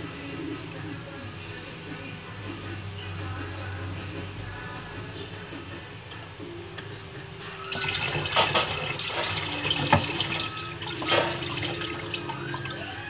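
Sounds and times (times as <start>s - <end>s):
tap water running into a pan: 7.7s - 13.0s
pan knocking and clinking: 8.2s - 10.3s.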